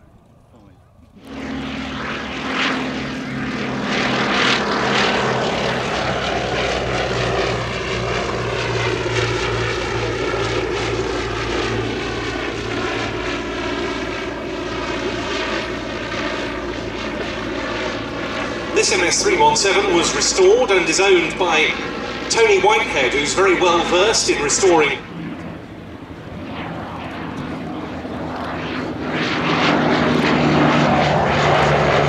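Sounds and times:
propeller aircraft engine passing: 0.0 - 32.0.

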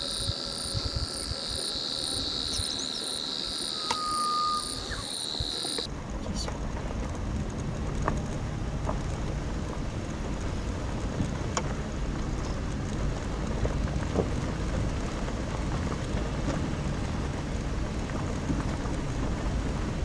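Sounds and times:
car driving on dirt road: 0.0 - 20.0
small clicks and ticks: 6.5 - 19.8.

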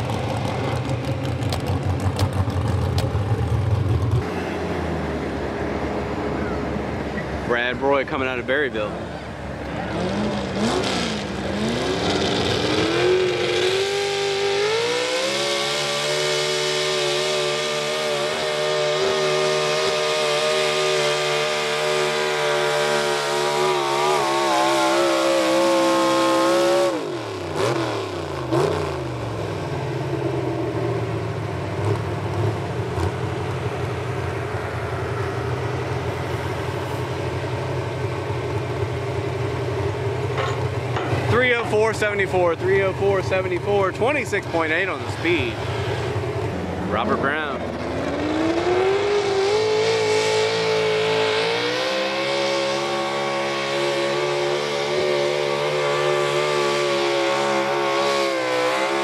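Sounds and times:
truck engine revving: 0.0 - 59.0.

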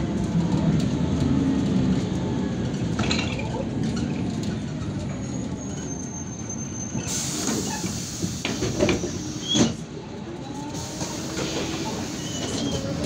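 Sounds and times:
bus engine and road drone: 0.0 - 13.0
high brake squeal: 5.2 - 9.8, 10.8 - 13.0.

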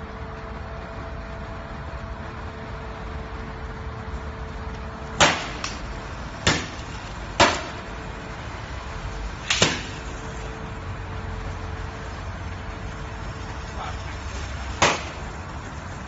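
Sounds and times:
steady hiss: 4.9 - 16.0.

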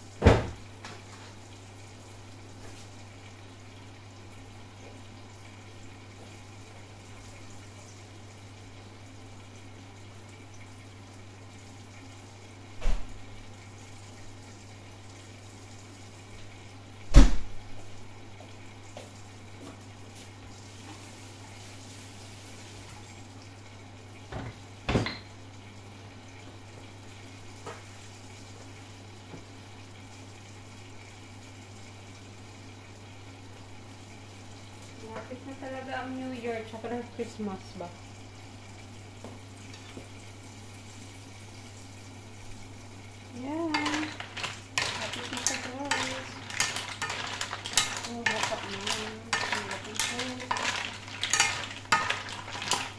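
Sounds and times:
dishes and utensils clattering: 43.7 - 52.9.

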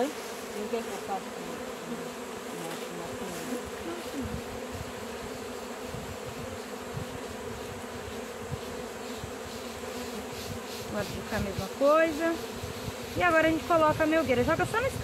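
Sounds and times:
honey bees buzzing: 0.0 - 15.0.

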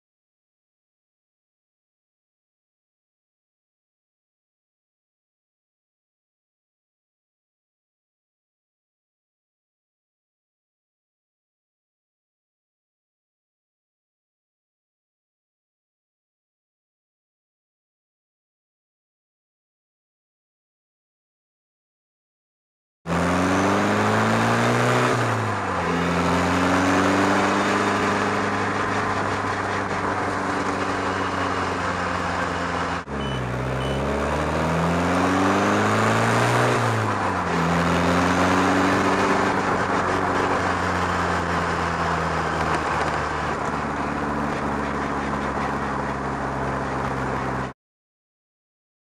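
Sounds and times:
car engine accelerating: 23.1 - 47.7
road noise: 23.1 - 47.8.

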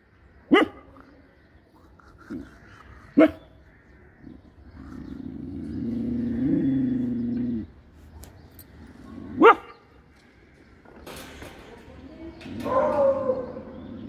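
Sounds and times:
dog growling low: 4.2 - 8.0, 13.4 - 14.0.

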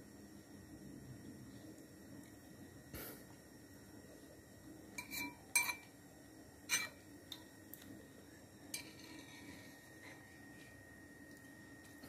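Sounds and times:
metal spoon clinking ceramic bowl: 5.0 - 5.9, 6.7 - 7.0.

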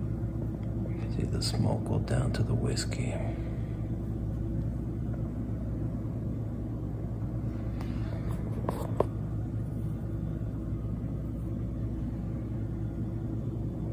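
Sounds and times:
low background rumble: 0.0 - 13.9.

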